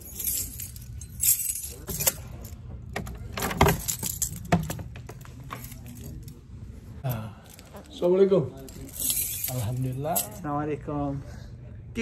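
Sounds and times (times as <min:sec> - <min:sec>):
keys jangling: 0:00.0 - 0:06.4, 0:08.6 - 0:10.4.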